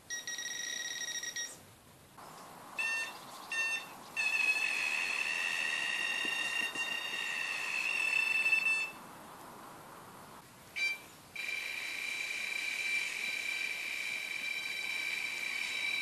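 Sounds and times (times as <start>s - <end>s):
short beep: 2.8s - 8.9s
electronic bite alarm tone: 2.8s - 9.0s, 10.8s - 16.0s.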